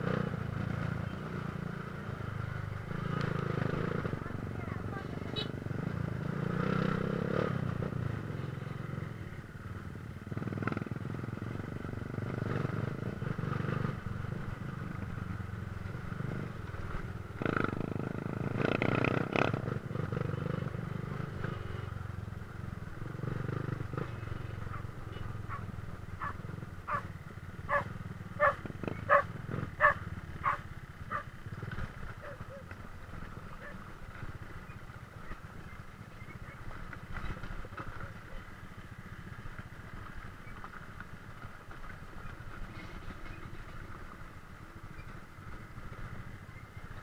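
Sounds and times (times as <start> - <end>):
dirt bike engine running: 0.0 - 47.0
dog barking: 25.5 - 27.1, 27.7 - 31.3, 32.2 - 32.6.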